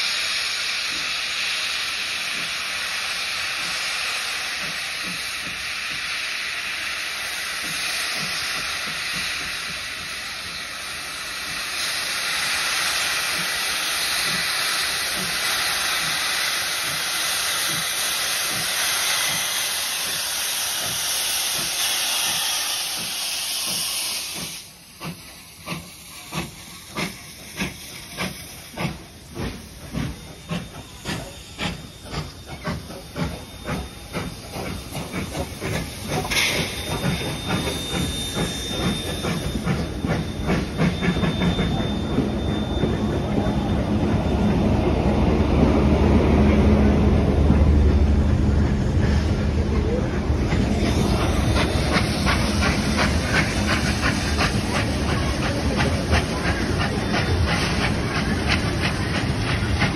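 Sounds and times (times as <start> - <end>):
steam locomotive hissing: 0.0 - 59.9
train wheels clickety-clack: 0.0 - 59.9.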